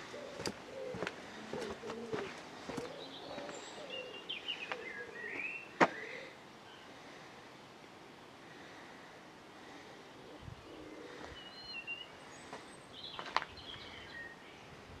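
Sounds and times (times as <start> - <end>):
small birds chirping: 0.0 - 7.2, 9.7 - 14.9
faint outdoor background noise: 0.0 - 15.0.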